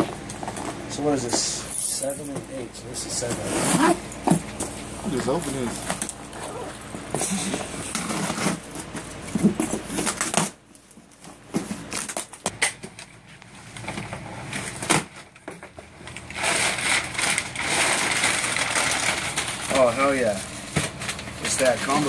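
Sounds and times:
packing paper rustling and crinkling: 0:04.5 - 0:22.0.

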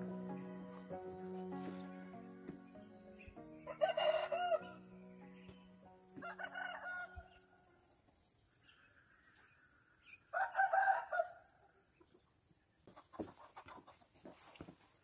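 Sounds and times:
rooster crowing: 0:03.7 - 0:04.9, 0:06.2 - 0:07.4, 0:10.3 - 0:11.5.

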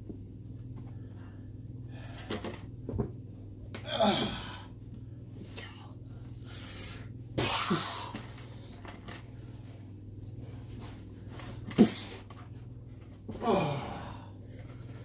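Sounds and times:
person crying out: 0:03.8 - 0:04.6, 0:13.4 - 0:14.3
person grunting: 0:03.8 - 0:04.7, 0:07.4 - 0:08.2, 0:13.3 - 0:14.4.

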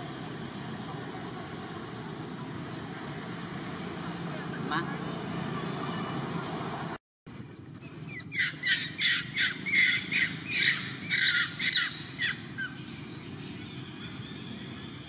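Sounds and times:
macaque squealing calls: 0:08.1 - 0:12.9.

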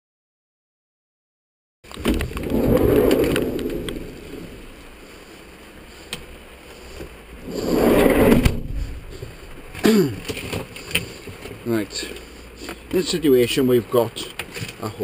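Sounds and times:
rumbling handling noise: 0:01.9 - 0:05.4, 0:06.0 - 0:11.6.

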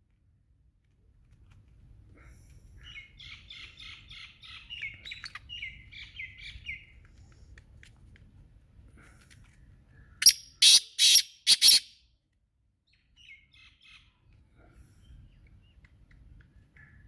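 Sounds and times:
bird calling harsh repeated notes: 0:10.2 - 0:12.0.

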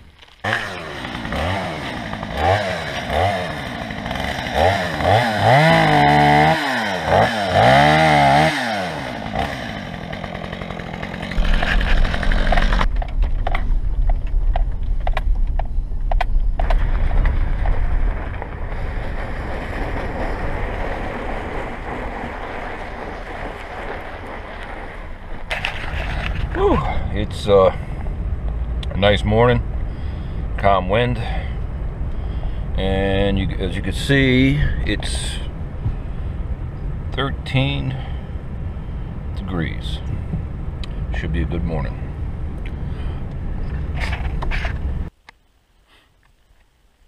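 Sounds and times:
truck rumbling on rough track: 0:00.0 - 0:45.2
chainsaw revving: 0:00.4 - 0:12.9.

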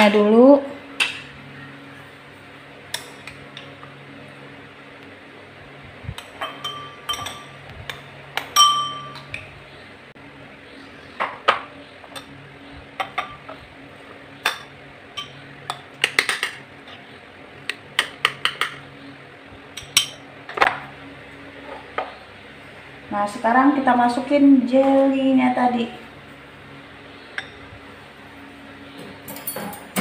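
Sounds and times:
ringing glass clink: 0:06.4 - 0:07.5, 0:08.6 - 0:09.2
metal spoon clinking on glass: 0:06.4 - 0:07.6, 0:08.5 - 0:09.3.

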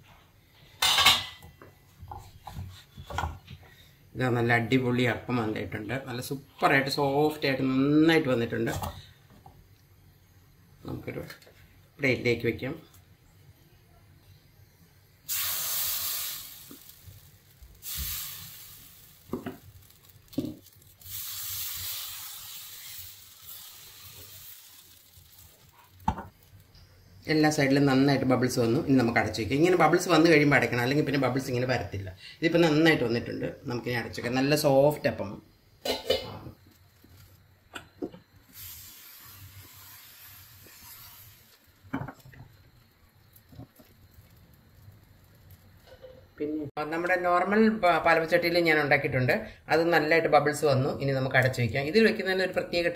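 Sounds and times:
batter sizzling in hot pan: 0:14.7 - 0:35.1, 0:35.8 - 0:46.0
pan knocking on burner grate: 0:26.0 - 0:26.3.

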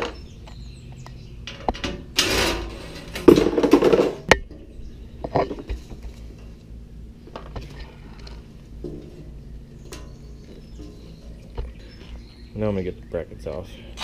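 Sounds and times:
tools and metal parts clattering: 0:01.4 - 0:06.5.

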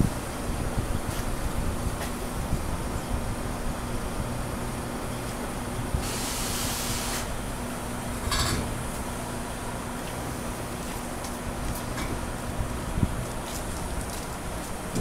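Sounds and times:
air hiss: 0:06.0 - 0:07.4.

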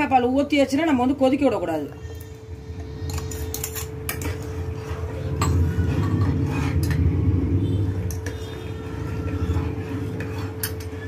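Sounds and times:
gas burner rumble: 0:03.0 - 0:11.0.

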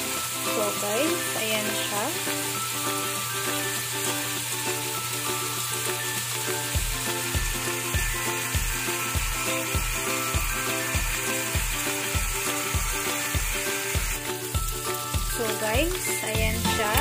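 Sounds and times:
pork sizzling in a wok: 0:00.0 - 0:17.0
background music with a beat: 0:02.4 - 0:17.0.

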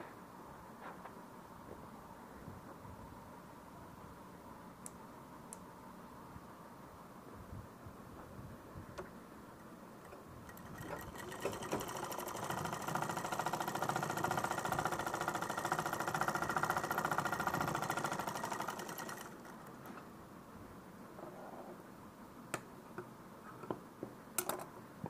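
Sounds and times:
sewing machine running: 0:10.1 - 0:20.0.

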